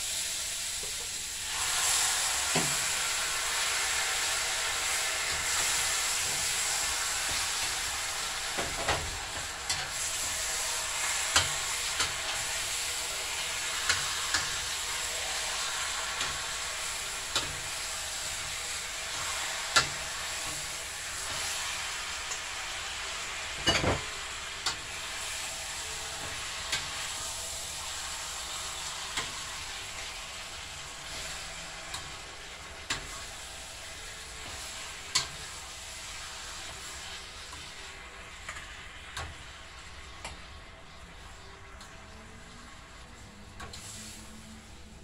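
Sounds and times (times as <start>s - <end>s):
chicken sizzling in hot oil: 0.0s - 45.0s.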